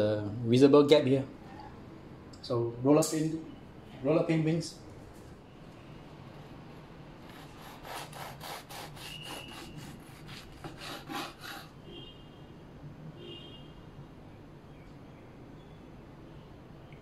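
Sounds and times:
bread knife sawing through loaf: 7.3 - 11.7.

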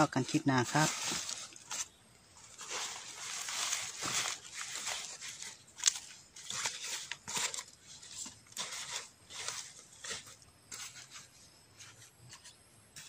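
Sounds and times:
nylon bag fabric rustling: 0.0 - 10.2.

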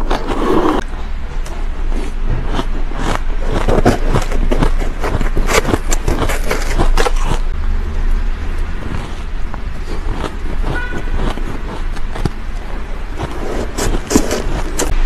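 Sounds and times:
chewing ice: 1.8 - 15.0
spoon scraping shaved ice: 1.9 - 7.6, 8.8 - 15.0.

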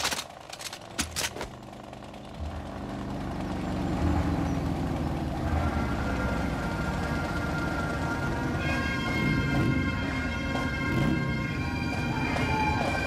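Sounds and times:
motorcycles rumbling: 0.0 - 8.6.

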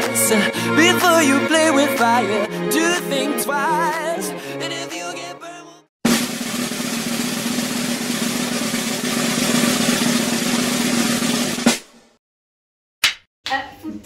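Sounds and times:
sharp drum hit: 6.0 - 12.0
snare drum roll: 6.0 - 12.2.

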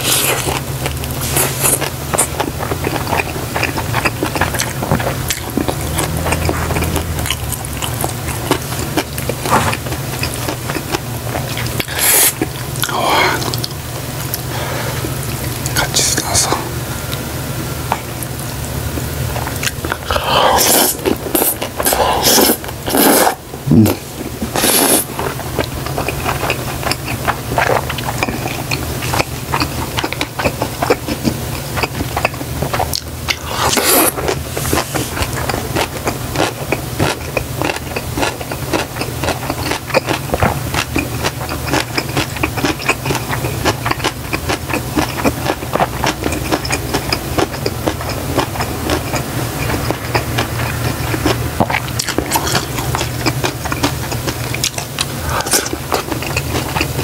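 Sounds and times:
wet chewing and mouth clicks: 0.0 - 17.2, 17.9 - 57.0
steady low hum: 0.0 - 57.0
noodle slurps and bites: 19.5 - 57.0.

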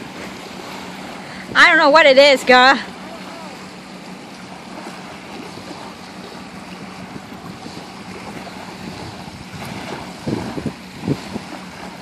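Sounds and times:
small waves lapping on shore: 0.0 - 12.0
wind on microphone: 5.0 - 12.0.

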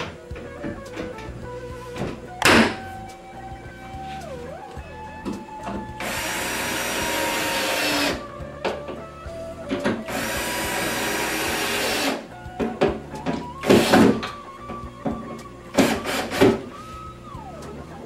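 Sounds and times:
power screwdriver running: 6.0 - 8.2, 10.1 - 12.2, 15.8 - 16.7.

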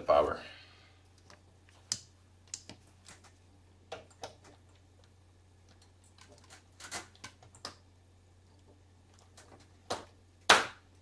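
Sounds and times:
faint low hum: 0.0 - 11.0
plastic plugs and cables clicking: 1.2 - 3.3.

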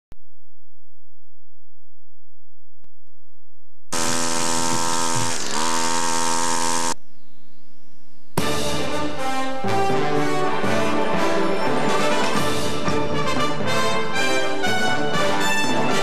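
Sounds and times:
electrical buzz with hiss: 3.9 - 7.0
brass-led theme music: 8.4 - 16.0.

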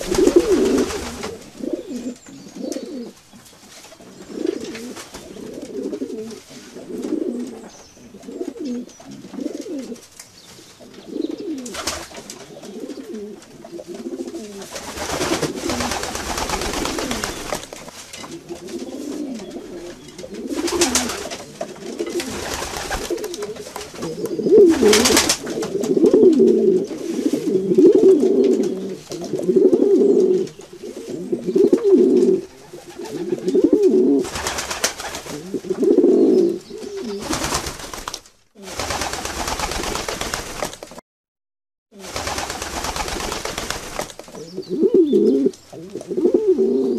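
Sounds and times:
wings flapping: 0.0 - 2.1, 11.5 - 13.0, 13.9 - 26.4, 34.2 - 35.6, 36.9 - 41.0, 42.0 - 44.5
pigeons cooing: 0.0 - 3.2, 4.0 - 10.0, 10.8 - 17.7, 18.3 - 37.5, 44.3 - 46.9.

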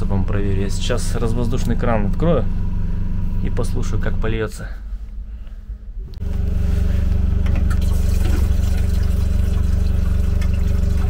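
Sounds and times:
low machine hum: 0.0 - 11.0
liquid trickling from valve: 7.6 - 11.0.

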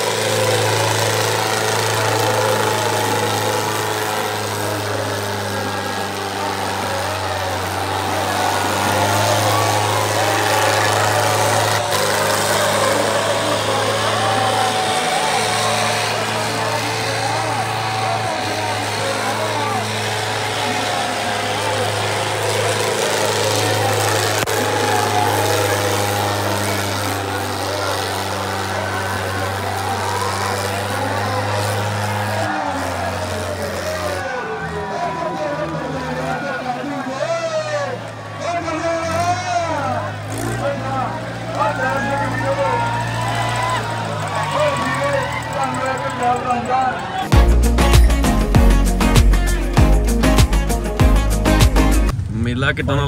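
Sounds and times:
crowd shouting: 0.0 - 51.0
tractor diesel engines droning: 0.0 - 53.0.

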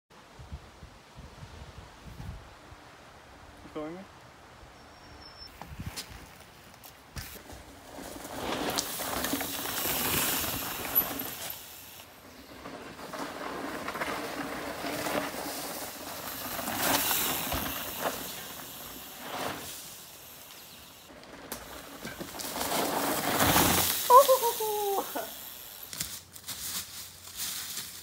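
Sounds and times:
bike tyres rolling over dry leaves: 5.9 - 28.0.

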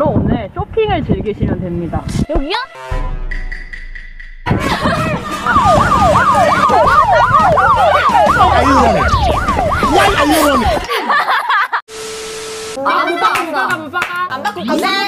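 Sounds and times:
siren wailing: 4.5 - 10.8.

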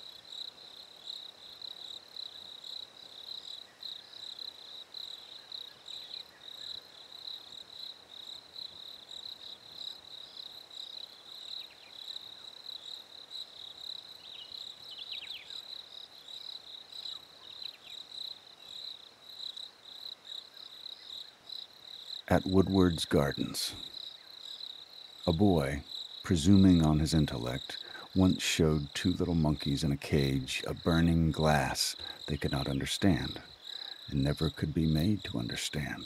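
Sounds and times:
crickets trilling: 0.0 - 36.0.

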